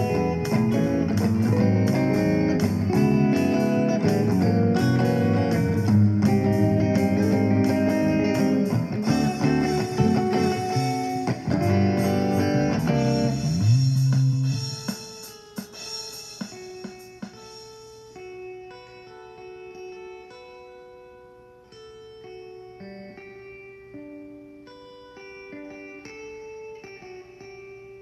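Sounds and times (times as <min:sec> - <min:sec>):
low bass line: 0:00.0 - 0:14.6
plucked and strummed guitar: 0:00.0 - 0:28.0.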